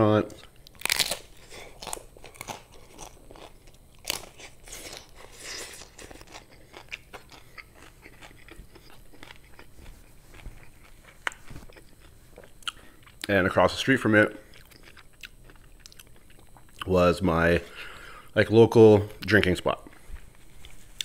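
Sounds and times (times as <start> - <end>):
soft chewing: 0.3 - 13.4, 14.4 - 16.9, 19.2 - 21.0
crunchy taco shell crunching: 0.4 - 13.3.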